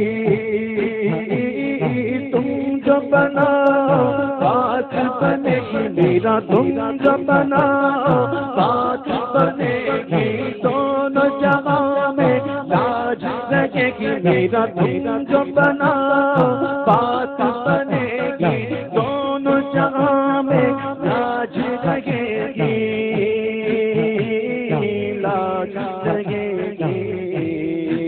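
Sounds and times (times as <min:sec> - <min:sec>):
low regular beat: 0:00.0 - 0:04.7
man singing devotional song: 0:00.0 - 0:28.0.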